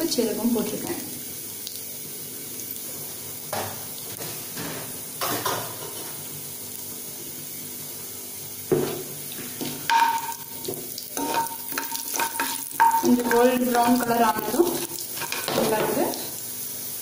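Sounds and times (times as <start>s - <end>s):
hot oil sizzling: 0.0s - 17.0s
spoon stirring pan clattering: 9.6s - 16.1s.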